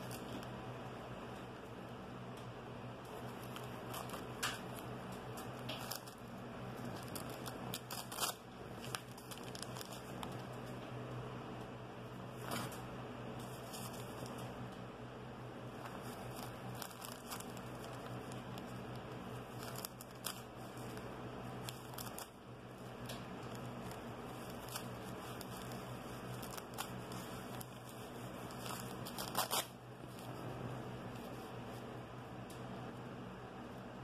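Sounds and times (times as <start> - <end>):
steady low hum: 0.0 - 34.0
newspaper tearing and crinkling: 3.1 - 6.2, 6.8 - 10.4, 13.4 - 14.4, 15.8 - 22.4, 23.4 - 30.4.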